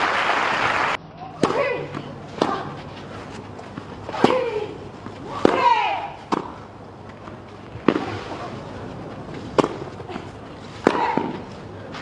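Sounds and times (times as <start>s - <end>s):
racquet hitting tennis ball: 1.4s - 6.6s, 7.7s - 8.5s, 9.3s - 10.0s, 10.7s - 12.0s.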